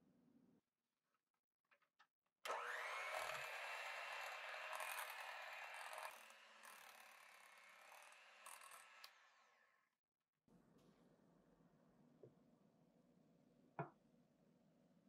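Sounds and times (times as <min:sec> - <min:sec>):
electric hand mixer running: 0:02.5 - 0:09.3.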